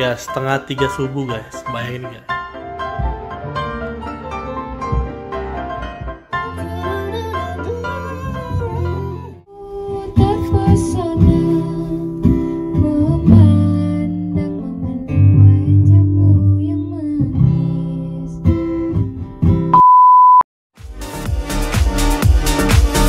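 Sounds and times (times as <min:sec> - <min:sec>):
guitar: 0:02.0 - 0:19.8
person singing: 0:06.4 - 0:18.4
steady high beep: 0:19.8 - 0:20.4.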